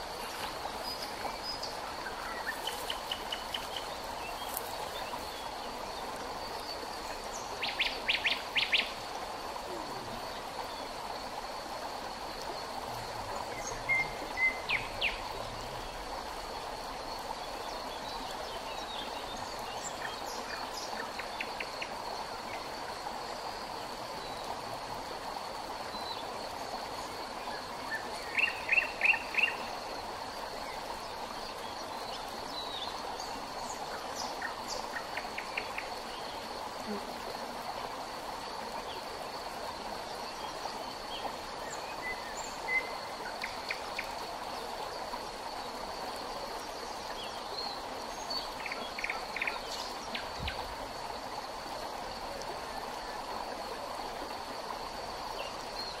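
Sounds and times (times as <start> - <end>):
songbirds chirping: 0.0 - 23.0
high insect hum: 0.0 - 56.0
river water flowing: 0.0 - 56.0.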